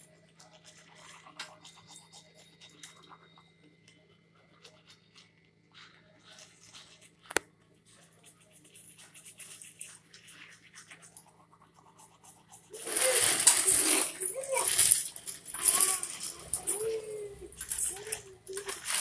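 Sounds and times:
faint scratching and rustling: 4.0s - 19.0s
loud rustling and handling: 12.7s - 19.0s.

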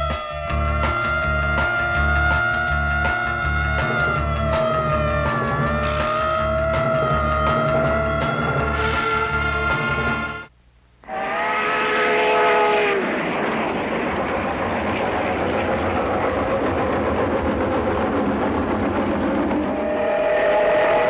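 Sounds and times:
steam locomotive running: 0.5s - 10.4s, 11.1s - 21.0s
steam locomotive whistle: 11.0s - 13.2s, 19.6s - 21.0s.

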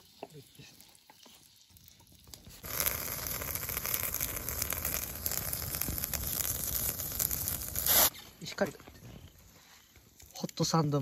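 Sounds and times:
sausages sizzling: 0.0s - 8.7s
wood fire crackling: 0.0s - 11.0s.

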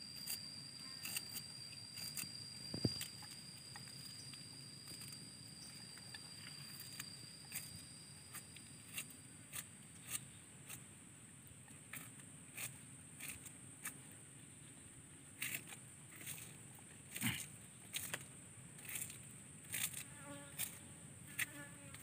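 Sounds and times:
thin high tone: 0.0s - 9.4s.

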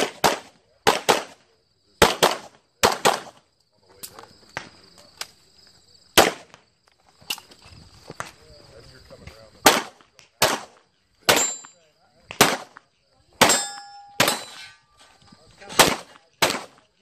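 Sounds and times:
handgun shots: 9.7s - 12.8s, 13.4s - 14.6s, 15.7s - 16.8s.

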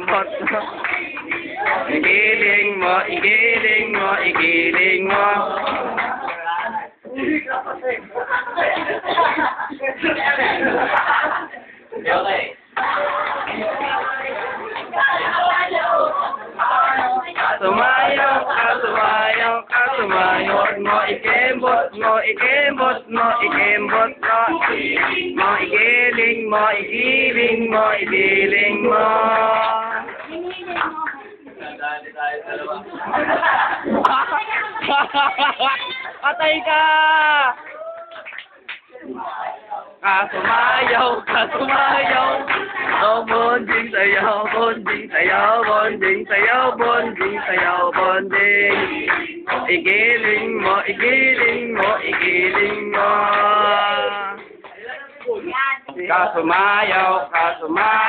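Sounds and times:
voices chanting: 0.0s - 6.8s, 10.1s - 31.0s, 39.0s - 58.0s.

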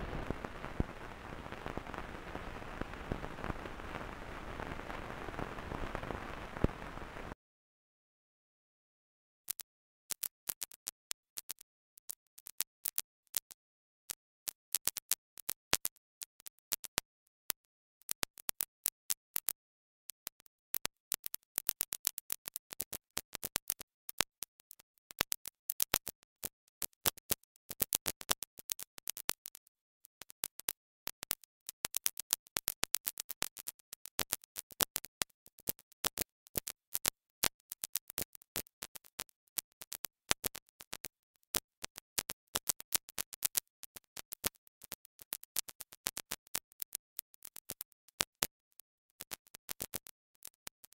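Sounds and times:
sharp irregular clicking and crackling: 0.0s - 7.4s, 20.1s - 48.6s.

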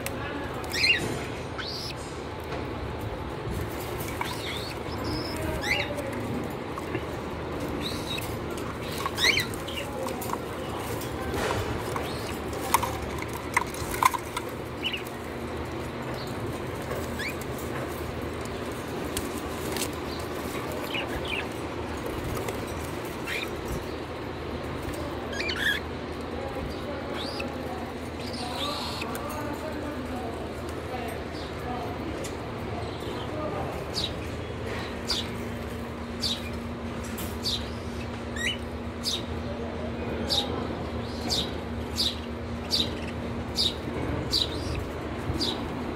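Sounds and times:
parrots chirping: 0.5s - 2.2s, 3.6s - 17.6s, 25.2s - 26.0s, 26.8s - 29.2s, 41.0s - 45.7s.

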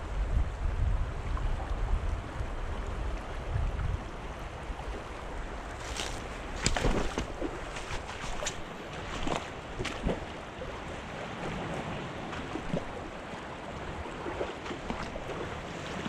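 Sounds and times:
creek water running over rocks: 4.1s - 16.0s.

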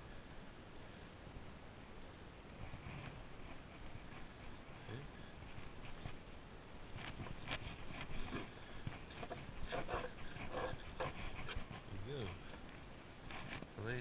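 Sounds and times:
knife scraping cutting board: 9.0s - 11.7s.

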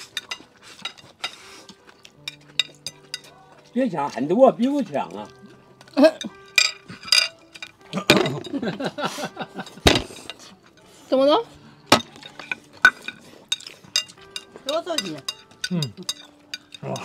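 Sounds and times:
chopsticks clicking on ceramic plate: 11.9s - 17.0s.

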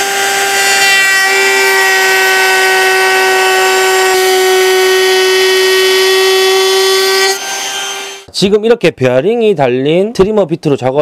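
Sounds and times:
trim router whining: 0.0s - 8.3s.

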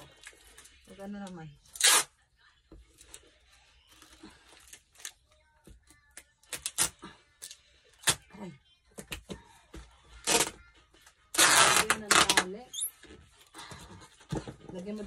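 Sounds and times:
packing tape ripping: 1.7s - 2.1s, 6.4s - 8.2s, 10.2s - 10.6s, 11.3s - 12.9s.

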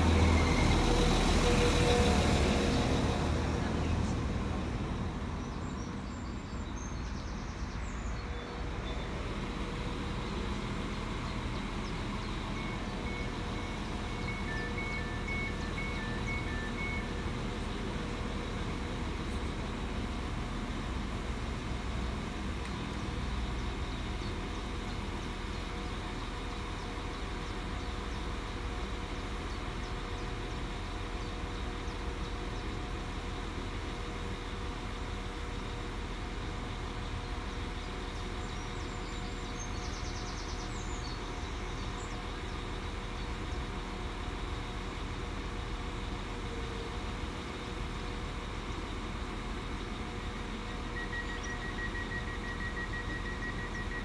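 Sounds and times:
train engines idling: 0.0s - 54.0s
beeping: 12.3s - 17.4s, 50.5s - 54.0s.

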